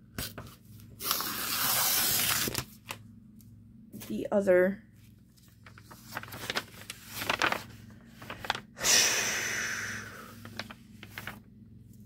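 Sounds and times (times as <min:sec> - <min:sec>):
plastic sleeves rustling: 0:05.0 - 0:08.8, 0:10.4 - 0:12.0
loud breathy hiss: 0:08.8 - 0:10.4.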